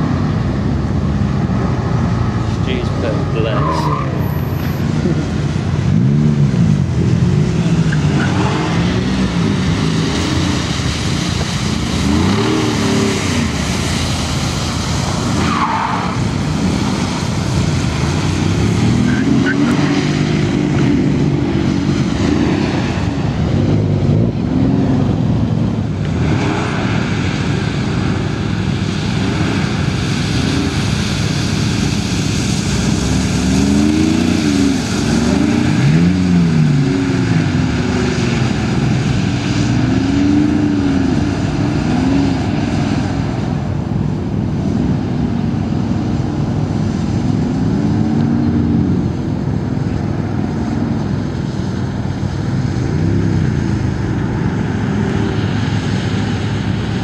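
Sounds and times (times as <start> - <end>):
engine revving: 0.0 - 43.6
tyres hissing on wet surface: 7.2 - 23.7, 26.1 - 43.7.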